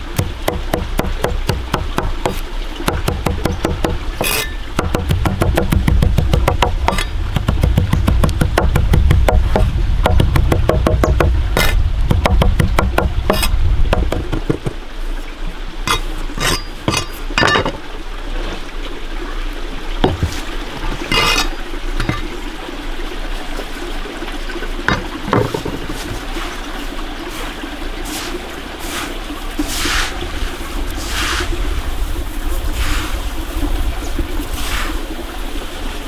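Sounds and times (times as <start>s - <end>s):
knocks and scrapes in pan: 3.0s - 14.8s, 20.0s - 22.3s.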